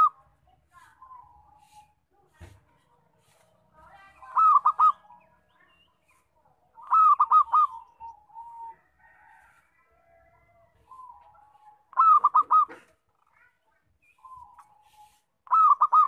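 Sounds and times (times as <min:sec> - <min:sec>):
dove cooing loudly: 0:04.3 - 0:05.2, 0:06.7 - 0:08.8, 0:10.8 - 0:13.0, 0:15.4 - 0:16.0.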